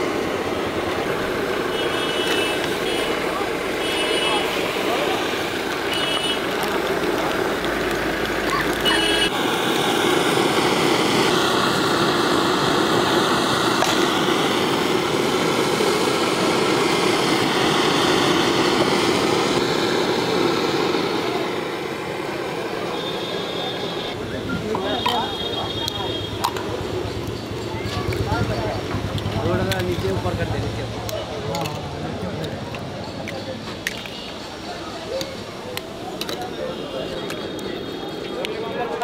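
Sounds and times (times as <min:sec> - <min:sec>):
street traffic: 0:00.0 - 0:39.0.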